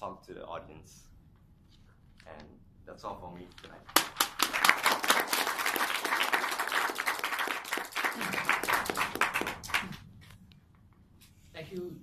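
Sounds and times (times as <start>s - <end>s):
audience applauding: 4.0s - 10.0s.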